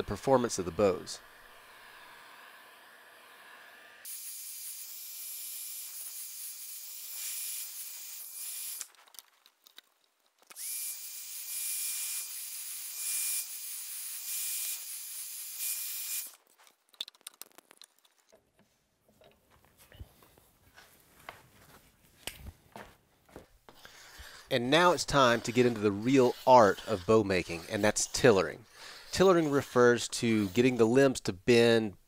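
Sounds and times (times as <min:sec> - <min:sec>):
small clicks: 0:08.8 - 0:10.6, 0:16.6 - 0:18.4.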